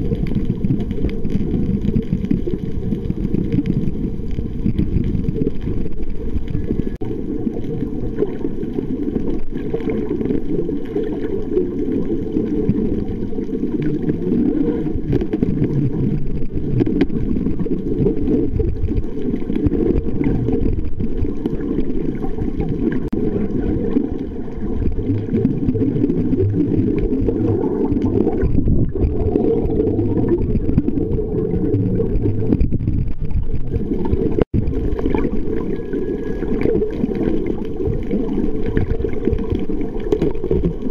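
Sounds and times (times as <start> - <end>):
muffled underwater water rumble: 0.0 - 40.9.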